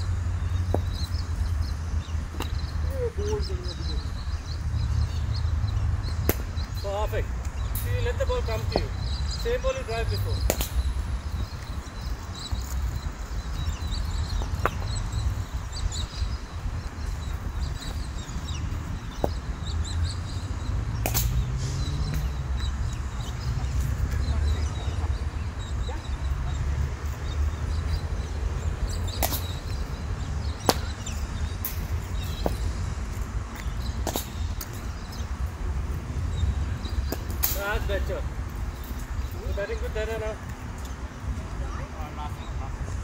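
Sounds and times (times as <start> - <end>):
cricket ball striking bat: 6.2 - 6.5, 10.4 - 10.8, 21.0 - 21.4, 29.2 - 29.6, 30.6 - 31.0.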